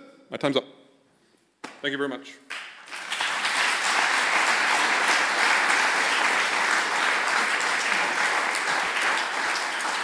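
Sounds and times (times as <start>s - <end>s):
audience applauding: 2.5s - 10.0s.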